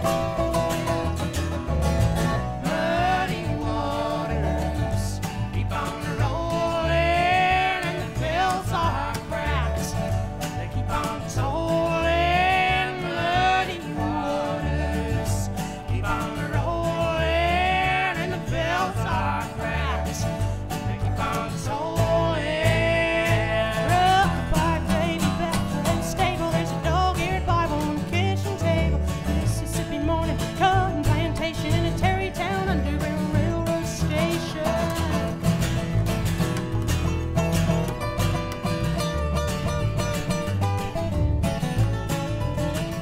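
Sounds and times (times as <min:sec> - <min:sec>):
acoustic guitar: 0:00.0 - 0:43.0
upright double bass: 0:00.0 - 0:43.0
men singing harmony: 0:02.4 - 0:30.2
woman singing lead vocal: 0:02.5 - 0:09.9, 0:10.7 - 0:20.1, 0:20.9 - 0:35.4.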